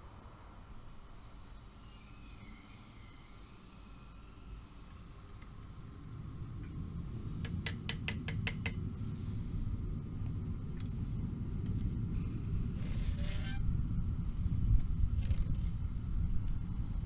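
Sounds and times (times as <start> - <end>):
gas burner flame rumbling: 2.4 - 17.0.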